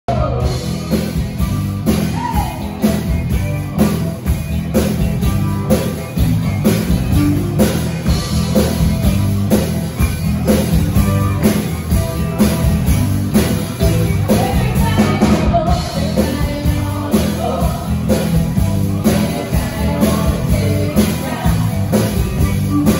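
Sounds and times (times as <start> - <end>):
woman singing lead vocals: 0.1 - 0.8, 2.0 - 2.8, 14.3 - 22.9
live band playing party song: 0.1 - 22.9.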